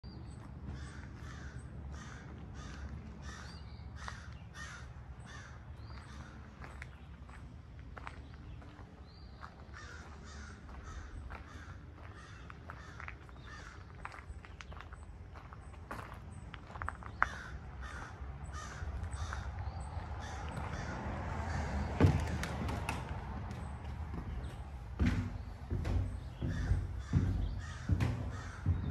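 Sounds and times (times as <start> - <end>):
crows cawing: 0.7 - 6.6, 9.7 - 14.0, 17.2 - 22.3, 26.0 - 28.9
bird calling: 23.6 - 28.9.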